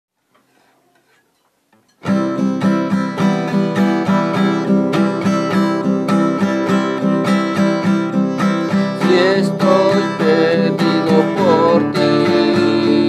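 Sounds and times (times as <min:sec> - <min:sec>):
faint handling sounds: 0:00.2 - 0:02.0
acoustic guitar strumming: 0:01.1 - 0:13.0.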